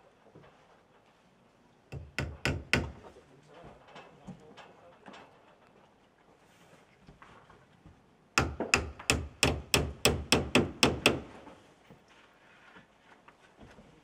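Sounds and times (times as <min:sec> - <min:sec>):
hatchet hammering wooden shingle: 0:01.9 - 0:03.1, 0:08.4 - 0:11.4.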